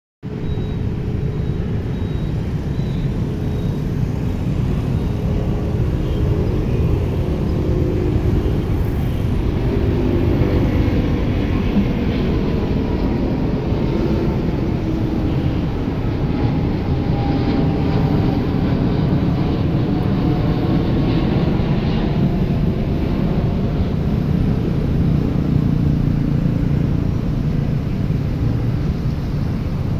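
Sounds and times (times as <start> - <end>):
faint engine whine: 0.2 - 29.9
jet engines rumbling overhead: 0.2 - 29.9.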